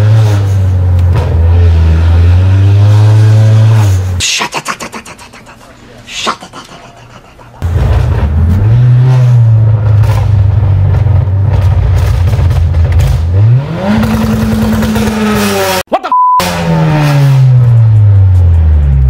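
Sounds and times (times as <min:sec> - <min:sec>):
car engine revving: 0:00.0 - 0:04.2, 0:07.6 - 0:19.0
short beep: 0:15.9 - 0:16.5.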